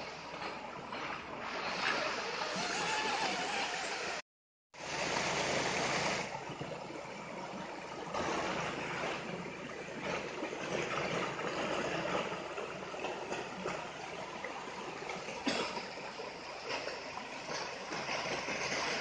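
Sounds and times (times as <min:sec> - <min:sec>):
river water rushing over rocks: 0:04.8 - 0:19.0.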